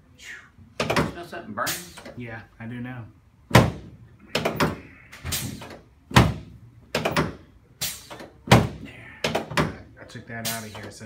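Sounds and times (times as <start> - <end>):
drop table thudding: 3.5 - 9.8.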